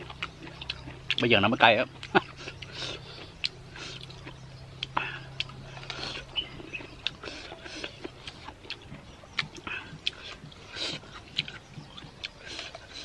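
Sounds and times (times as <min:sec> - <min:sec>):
low steady hum: 0:00.0 - 0:13.0
wet chewing: 0:00.0 - 0:13.0
lip smacks: 0:02.0 - 0:13.0.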